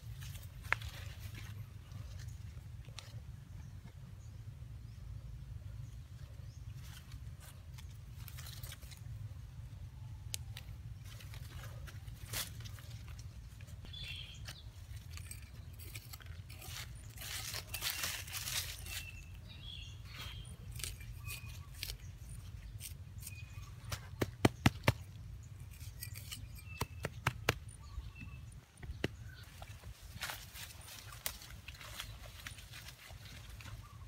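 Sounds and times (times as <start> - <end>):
leaves rustling: 0.0 - 3.2, 10.9 - 23.9, 29.4 - 34.0
blade scraping dry soil: 10.9 - 27.4.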